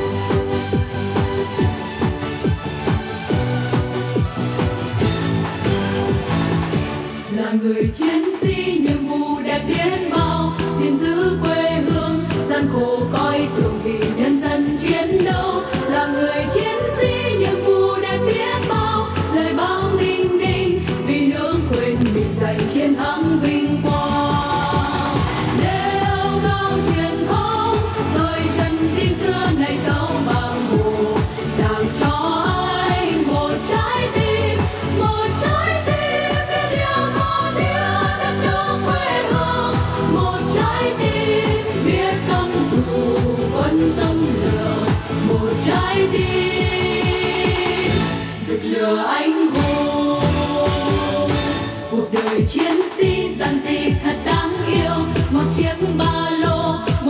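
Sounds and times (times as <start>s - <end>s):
amplified backing track with beat: 0.0s - 7.2s
amplified backing music: 0.0s - 57.0s
women singing into microphones: 7.3s - 57.0s.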